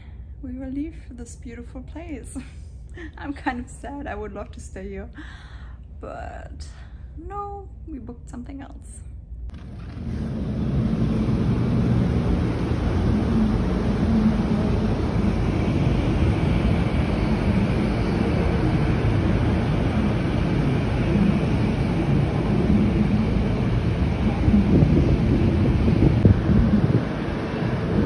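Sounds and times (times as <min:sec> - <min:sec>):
low rumble: 0:09.0 - 0:28.0
wind on microphone: 0:09.5 - 0:28.0.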